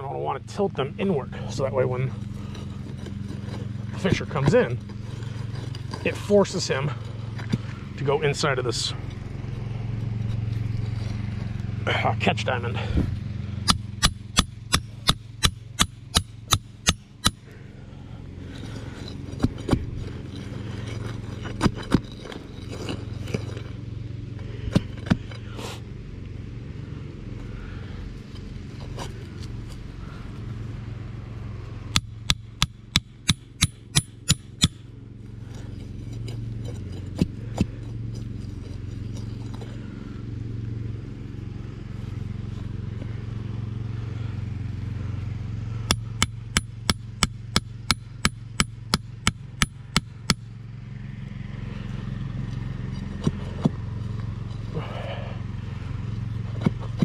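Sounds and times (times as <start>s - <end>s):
steady low hum: 0.0s - 57.0s
hammer striking steel stake: 13.6s - 17.5s, 31.9s - 34.8s, 45.9s - 50.5s.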